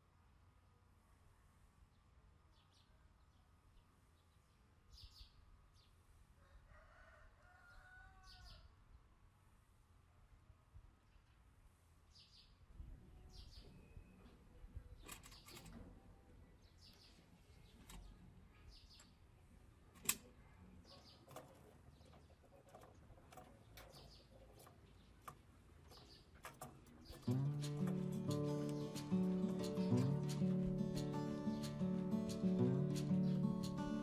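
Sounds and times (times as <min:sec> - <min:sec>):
birds chirping: 0:20.5 - 0:34.0.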